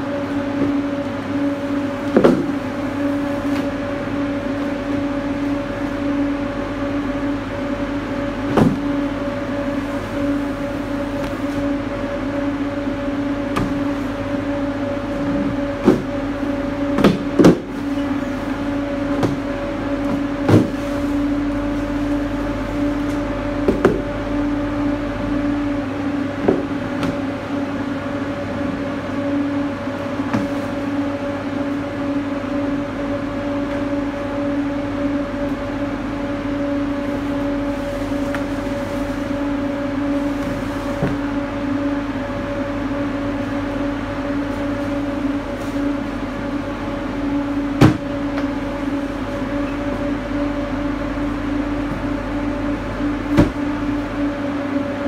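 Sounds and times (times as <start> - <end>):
cooling unit humming: 0.0 - 55.0
crates knocking and thudding: 1.8 - 2.8, 8.3 - 9.3, 13.2 - 17.9, 18.8 - 21.5, 26.2 - 27.4, 47.5 - 48.6, 53.1 - 54.0.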